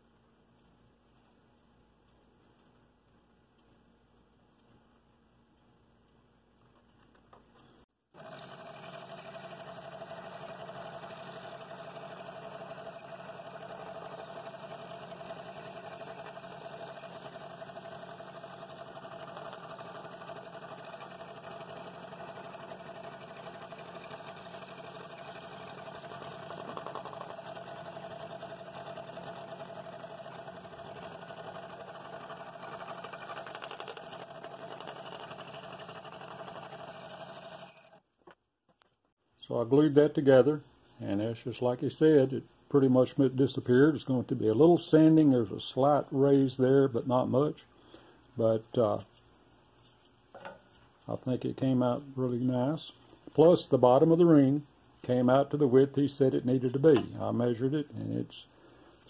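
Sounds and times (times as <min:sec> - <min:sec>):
scroll saw cutting wood: 0:08.2 - 0:38.0.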